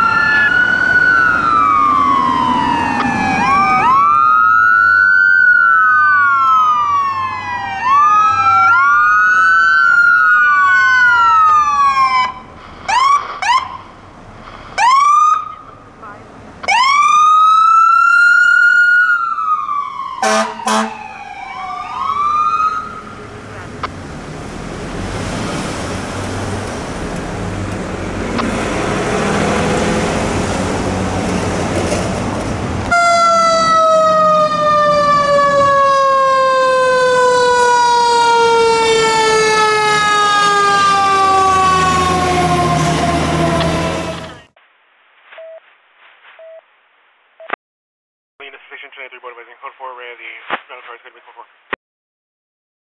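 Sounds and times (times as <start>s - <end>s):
mechanical siren winding down: 0.0s - 13.8s, 32.9s - 44.5s
ambulance siren wailing: 0.0s - 14.0s, 14.8s - 23.9s, 32.8s - 44.5s
traffic and engine noise: 0.0s - 18.1s, 19.0s - 44.6s
diesel engine rumble: 10.0s - 16.8s, 22.1s - 35.8s
horn blasts: 20.2s - 21.0s.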